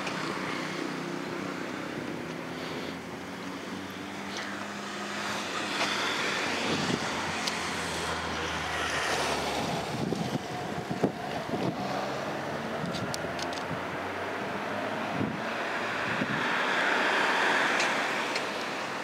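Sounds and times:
car engine low hum: 0.0 - 19.0
street traffic noise: 0.0 - 19.0
wind buffeting microphone: 6.4 - 16.7.

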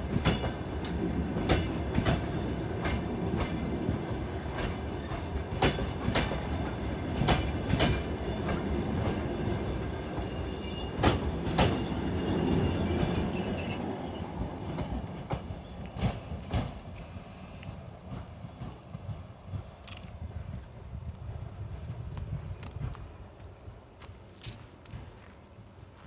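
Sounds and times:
train wheels clacking over rail joints: 0.0 - 9.4, 10.1 - 13.6, 14.7 - 17.1
train rumble: 0.0 - 26.0.

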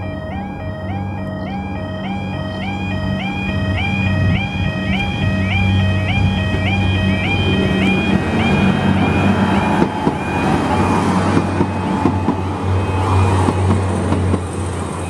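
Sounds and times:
level crossing alarm warble: 0.0 - 14.0
diesel train engine drone: 0.0 - 15.0
wheels clicking over rail joints: 6.2 - 15.0.

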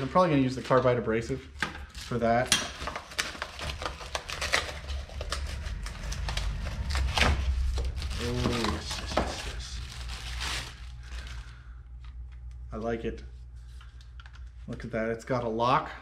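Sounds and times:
plastic packaging crinkling: 1.8 - 12.6.

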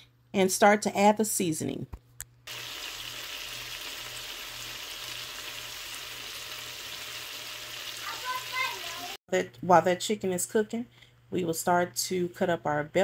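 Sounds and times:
chicken sizzling in a skillet: 2.5 - 9.2.

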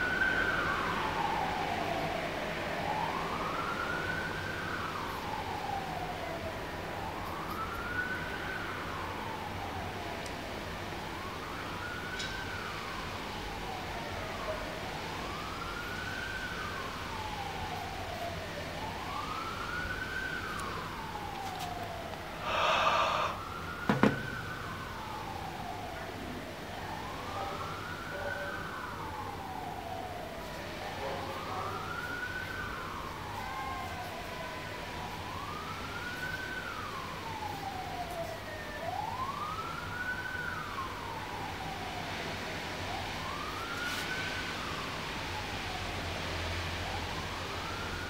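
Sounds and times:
emergency siren wailing: 0.0 - 48.0
steady background hiss: 18.8 - 26.7
steady hiss: 22.4 - 23.5.

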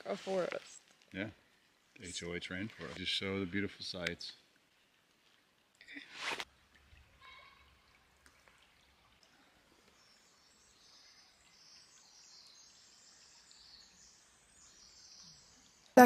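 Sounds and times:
faint stream trickling over stones: 0.0 - 16.0
faint high birdsong: 9.9 - 16.0.

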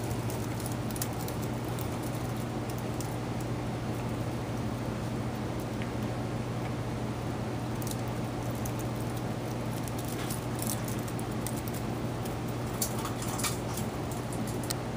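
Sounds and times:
puppy claws clicking: 0.0 - 3.5, 7.8 - 14.8.

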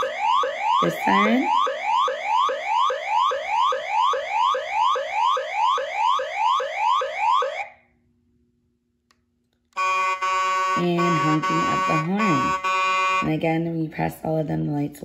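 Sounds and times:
toy police siren whooping: 0.0 - 7.8, 9.8 - 13.3.

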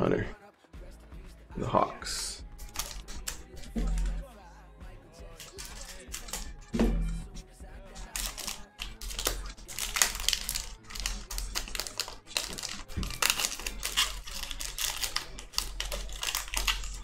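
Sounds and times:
foil wrapper crinkling: 2.6 - 4.2, 5.4 - 6.5, 8.0 - 17.0.

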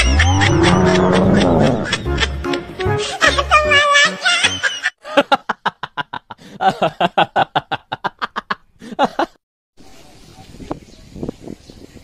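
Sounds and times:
person laughing: 0.0 - 9.4.

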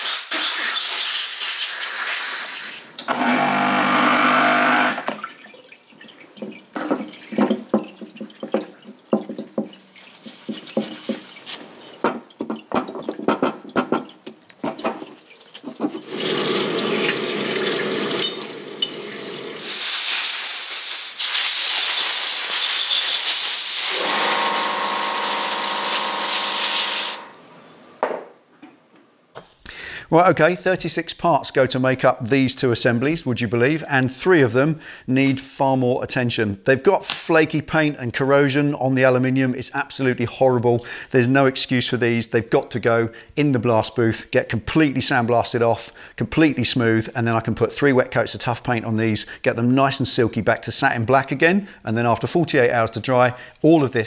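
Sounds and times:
brush scrubbing metal parts: 6.4 - 12.6, 14.0 - 27.3
solvent running from nozzle: 16.0 - 27.4
long loud hiss: 19.6 - 27.4.

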